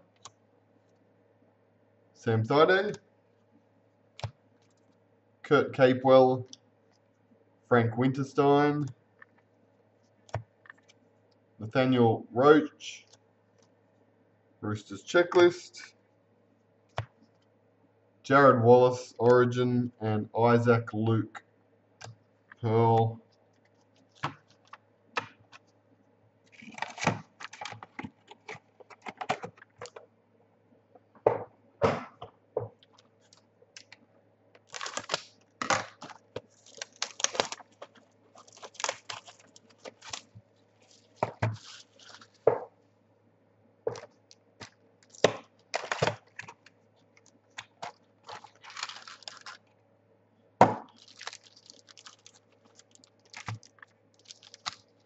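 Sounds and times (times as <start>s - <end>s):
faint steady hum: 0.0s - 55.0s
wrappers crinkling: 26.5s - 29.1s, 32.8s - 34.0s, 34.6s - 42.5s, 43.9s - 49.7s, 50.9s - 55.0s.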